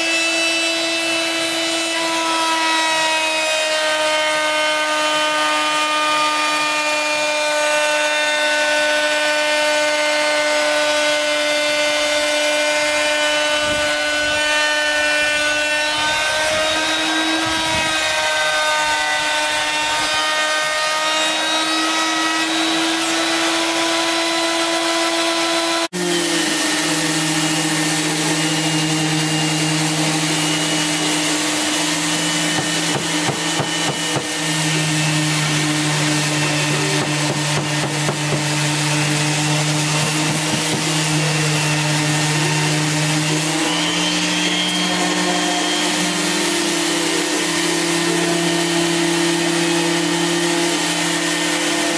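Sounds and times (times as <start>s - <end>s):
electric router whining: 0.0s - 51.9s
electric sander on wood: 0.0s - 51.9s.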